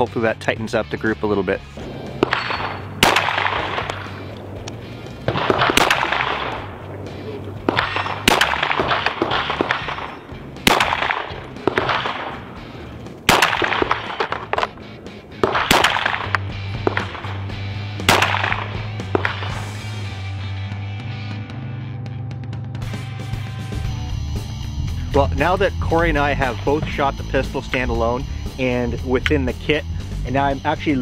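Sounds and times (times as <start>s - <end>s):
background music: 0.0s - 31.0s
pistol shots with echo: 1.8s - 14.8s, 15.4s - 19.8s.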